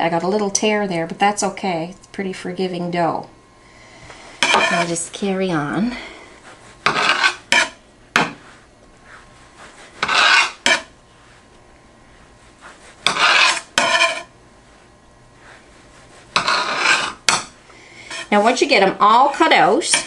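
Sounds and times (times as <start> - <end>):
bread knife sawing through dough: 4.4 - 5.0, 6.6 - 7.7, 9.6 - 10.9, 12.6 - 14.3, 15.8 - 17.3.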